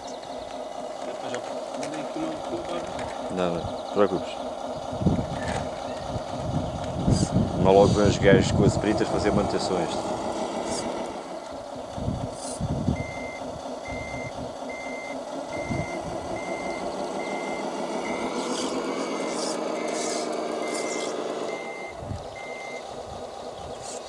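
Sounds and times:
simulated diesel engine: 0:00.0 - 0:24.0
reversing beeper: 0:12.9 - 0:22.9.

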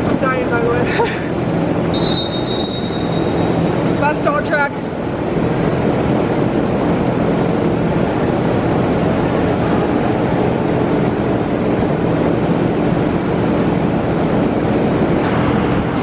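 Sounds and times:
low hum: 0:00.0 - 0:16.0
ventilation fans rushing air: 0:00.0 - 0:16.0.

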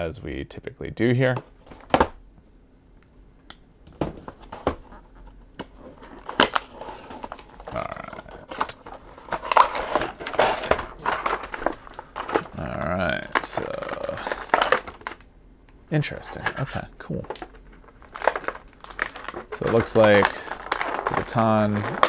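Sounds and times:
plastic tray crinkling and scraping: 0:04.2 - 0:15.2, 0:16.1 - 0:22.0.

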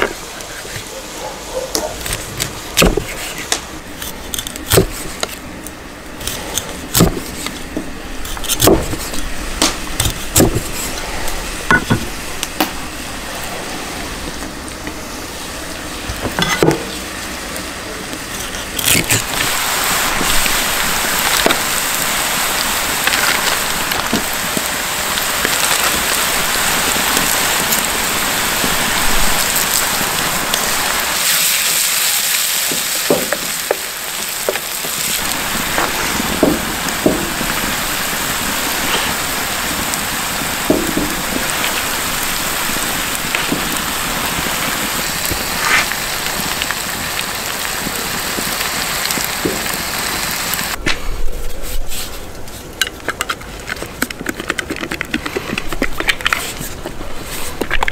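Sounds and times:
vegetables sizzling in a metal pan: 0:08.8 - 0:18.3, 0:18.9 - 0:50.8.

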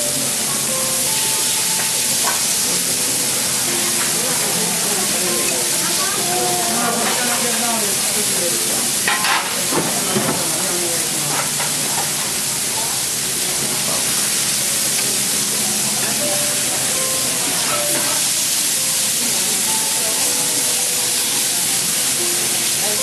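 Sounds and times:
steaks sizzling on griddle: 0:00.0 - 0:23.0.

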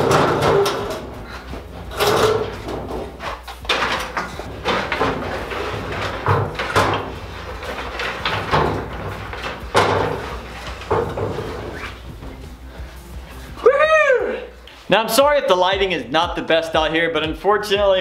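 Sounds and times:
wooden frame knocking and scraping: 0:00.0 - 0:13.5.

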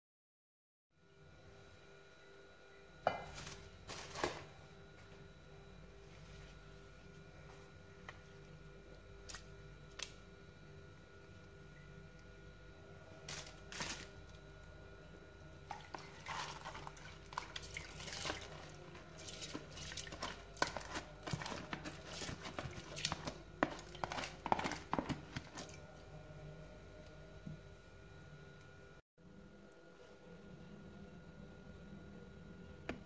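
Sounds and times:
spatula scraping plastic tub: 0:15.9 - 0:25.8.

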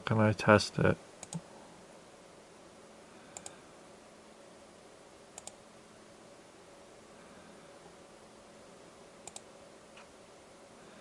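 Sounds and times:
faint steady hum: 0:00.0 - 0:11.0
computer mouse clicks: 0:01.2 - 0:01.4, 0:03.3 - 0:03.6, 0:05.4 - 0:05.6, 0:09.2 - 0:10.1.

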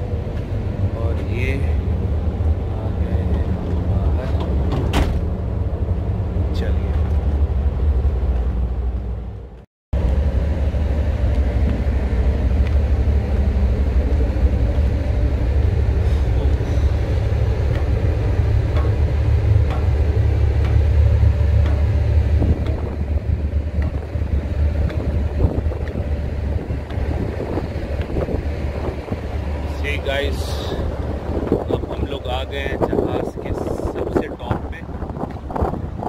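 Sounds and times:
wind buffeting microphone: 0:10.0 - 0:36.0.

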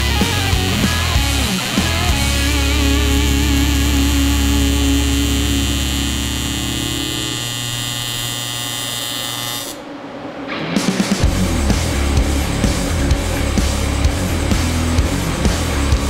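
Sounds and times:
music with heavy beat: 0:00.0 - 0:06.4, 0:10.8 - 0:16.0
welding arc buzzing: 0:00.0 - 0:09.9.

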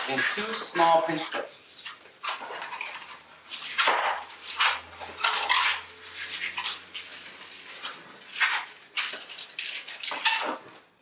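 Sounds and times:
balloon squeaking while twisted: 0:03.6 - 0:07.6, 0:09.4 - 0:10.6.

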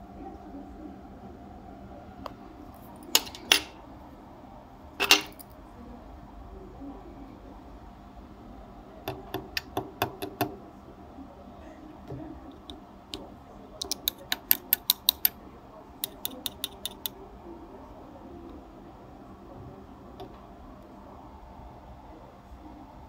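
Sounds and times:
screwdriver tapping metal: 0:03.2 - 0:03.7, 0:05.0 - 0:05.4, 0:13.8 - 0:15.4, 0:16.0 - 0:17.1.

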